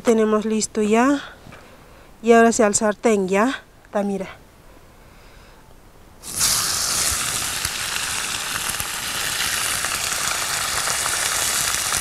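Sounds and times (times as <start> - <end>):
meat sizzling in hot oil: 6.2 - 12.0.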